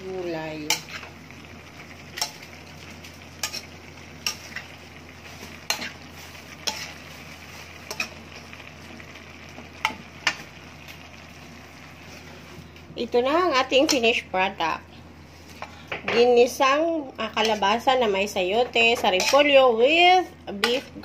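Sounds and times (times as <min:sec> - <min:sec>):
vegetables frying sizzle: 0:00.0 - 0:21.0
spatula scraping metal wok: 0:03.3 - 0:08.2, 0:18.9 - 0:19.6.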